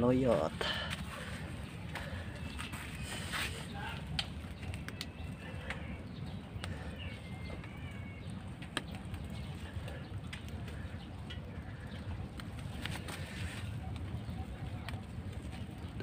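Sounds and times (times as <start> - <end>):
leaves rustling: 0.0 - 5.7, 11.6 - 14.4
steady low rumble: 0.0 - 16.0
faint bird call: 1.2 - 11.0
stems snapping: 3.4 - 14.1.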